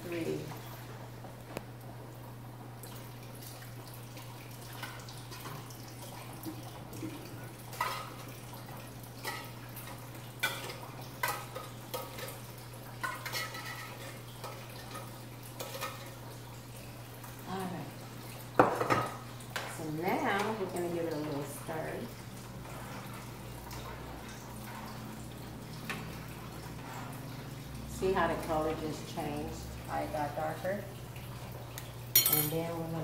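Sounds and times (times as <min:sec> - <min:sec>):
metal utensils clinking on pans: 0:07.7 - 0:08.4, 0:09.2 - 0:16.2, 0:32.1 - 0:32.8.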